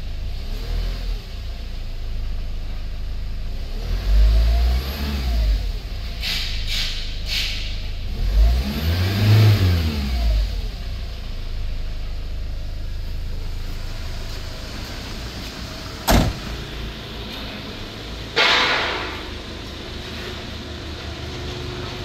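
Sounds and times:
diesel van engine revving and idling: 0:00.0 - 0:22.0
van door slamming: 0:16.0 - 0:16.8.

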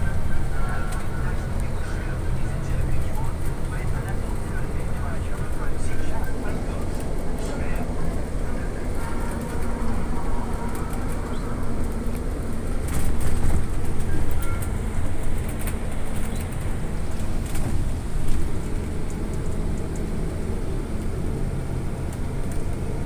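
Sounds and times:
low road rumble: 0:00.0 - 0:23.0
rattles and clicks: 0:03.0 - 0:20.1.

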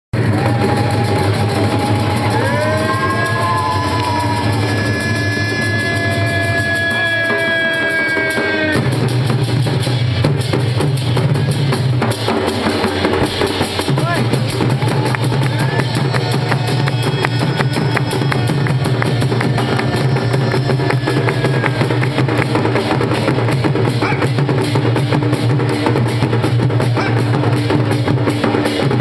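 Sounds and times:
group of folk drums played fast: 0:00.2 - 0:29.0
held wavering high tone: 0:02.6 - 0:07.0, 0:15.7 - 0:23.1.

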